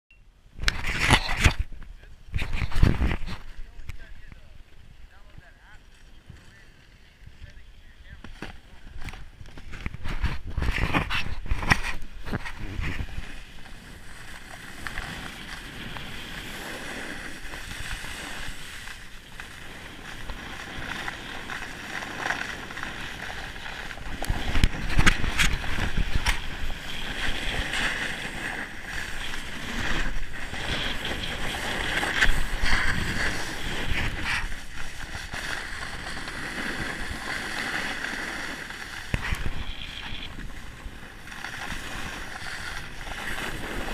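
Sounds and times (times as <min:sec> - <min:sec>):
snowboard scraping over snow: 0:02.4 - 0:43.9
wind buffeting microphone: 0:24.0 - 0:28.1.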